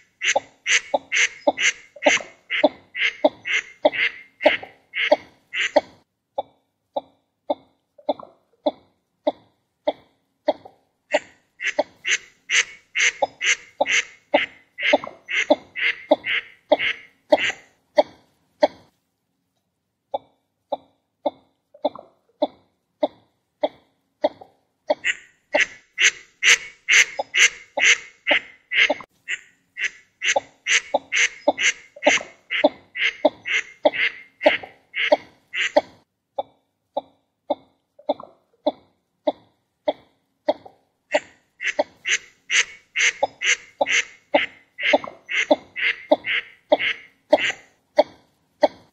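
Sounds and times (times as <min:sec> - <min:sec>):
ducks calling: 0:00.0 - 0:05.9, 0:11.1 - 0:17.7, 0:24.9 - 0:35.9, 0:41.1 - 0:47.7.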